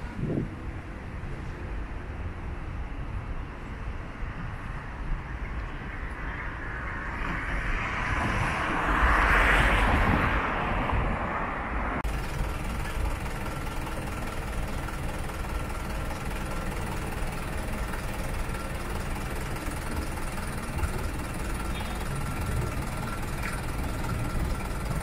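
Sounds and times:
hum of slow city traffic: 0:00.0 - 0:25.0
vehicle passing: 0:05.8 - 0:12.1.

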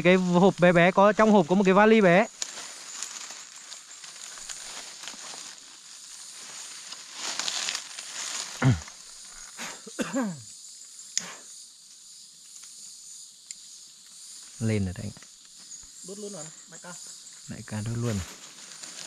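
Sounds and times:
high-pitched insect drone: 0:00.0 - 0:19.0
rustling: 0:02.3 - 0:09.4, 0:18.0 - 0:19.0.

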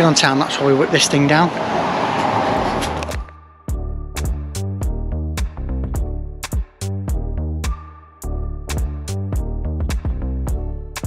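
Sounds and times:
electronic music with beat: 0:03.0 - 0:11.0.

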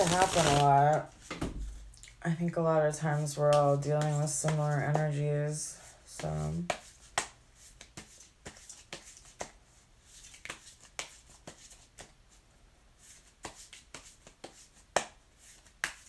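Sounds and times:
cards being shuffled: 0:00.0 - 0:01.0, 0:06.2 - 0:12.1.

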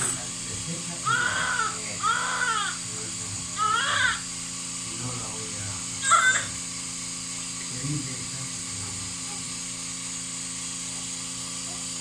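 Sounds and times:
electrical hum with high hiss: 0:00.0 - 0:12.0.

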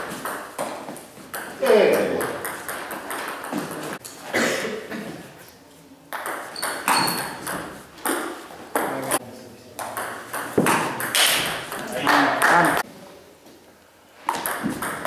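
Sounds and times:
high squeak: 0:06.6 - 0:07.4.

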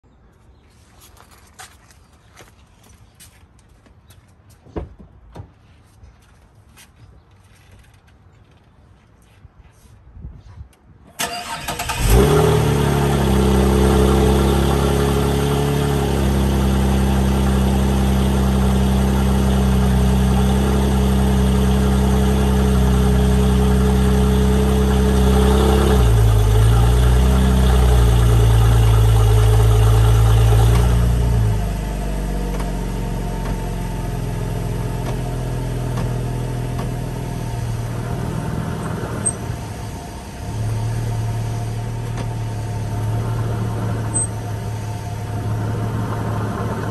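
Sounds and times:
car engine idling: 0:11.2 - 0:46.9.

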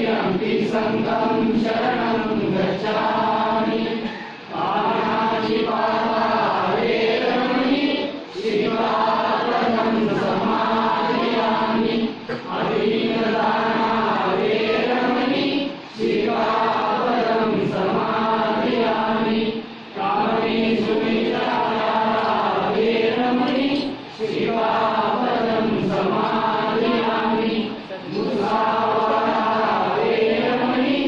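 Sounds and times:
congregation chanting in unison: 0:00.0 - 0:31.0.

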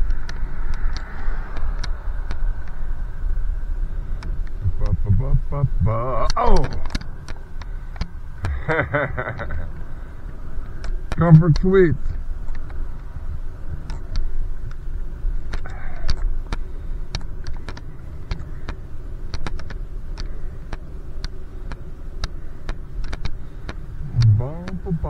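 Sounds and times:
sharp clicks and ticks: 0:00.0 - 0:02.8, 0:04.2 - 0:05.3, 0:06.2 - 0:08.6, 0:10.7 - 0:11.7, 0:15.5 - 0:25.0
bicycle road rumble: 0:00.0 - 0:25.0
wind: 0:00.0 - 0:25.0.

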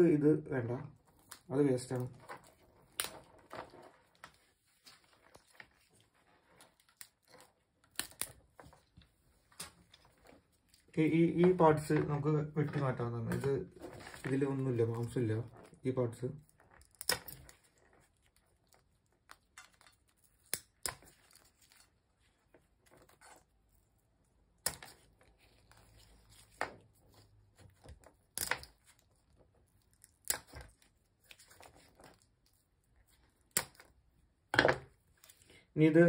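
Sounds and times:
shell cracking: 0:06.8 - 0:08.4, 0:16.5 - 0:21.4.

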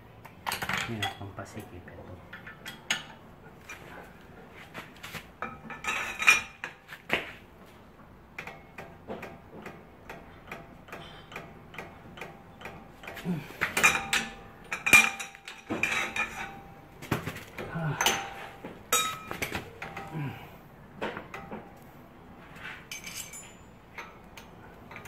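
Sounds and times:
metallic clinks of tools: 0:22.9 - 0:25.0.

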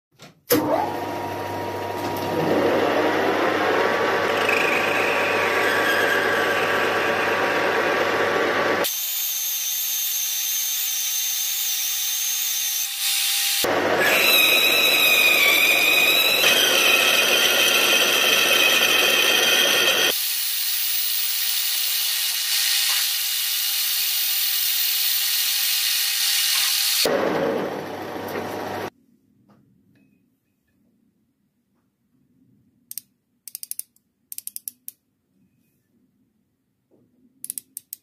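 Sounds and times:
lathe machine hum: 0:01.0 - 0:08.8, 0:13.7 - 0:20.1, 0:27.1 - 0:28.9
metal lathe cutting with high whine: 0:02.5 - 0:08.8, 0:13.7 - 0:20.1.

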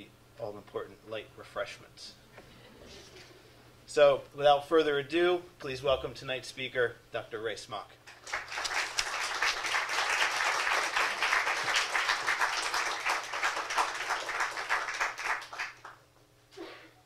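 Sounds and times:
audience applauding: 0:08.1 - 0:16.0.

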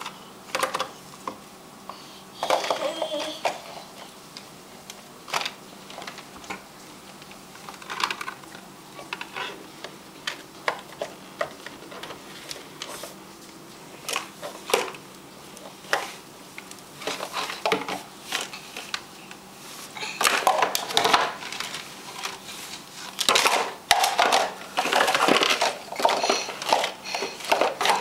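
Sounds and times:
plastic containers clattering: 0:00.0 - 0:01.0, 0:02.4 - 0:03.8, 0:07.5 - 0:13.0, 0:14.1 - 0:15.0, 0:17.0 - 0:19.0, 0:20.1 - 0:22.4, 0:23.1 - 0:28.0.

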